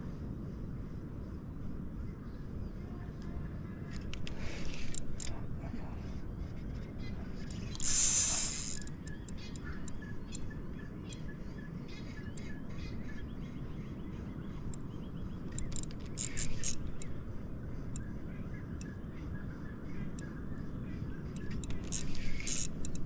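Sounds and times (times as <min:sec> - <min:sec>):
faint bird chirps: 0:02.0 - 0:23.0
hiss of noise: 0:07.6 - 0:09.0
light clicks: 0:15.5 - 0:17.2, 0:21.3 - 0:23.0.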